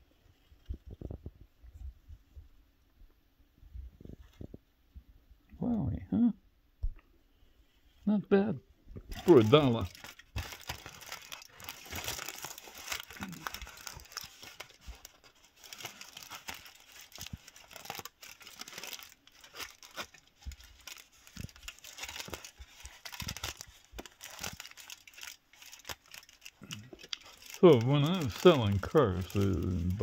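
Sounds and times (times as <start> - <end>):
aluminum foil crinkling: 9.0 - 30.0.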